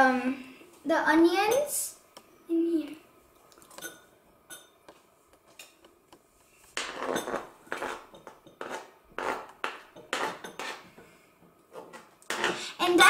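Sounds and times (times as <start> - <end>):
knife scraping cutting board: 6.8 - 10.9, 11.7 - 12.7.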